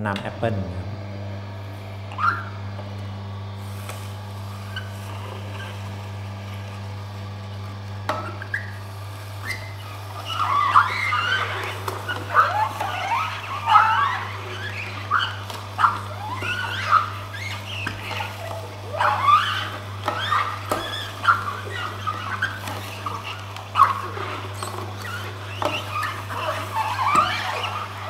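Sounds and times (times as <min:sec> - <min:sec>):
juicer motor hum: 0:00.0 - 0:28.0
squeaks of apple skin squeezed: 0:09.4 - 0:28.0.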